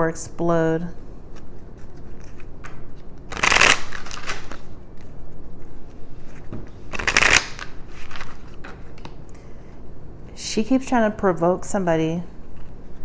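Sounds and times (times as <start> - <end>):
cards being shuffled: 1.3 - 9.2.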